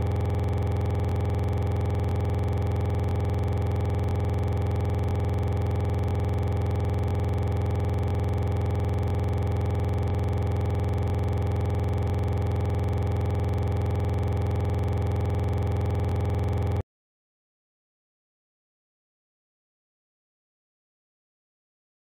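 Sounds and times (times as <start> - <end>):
electronic buzzing drone: 0.0 - 16.8.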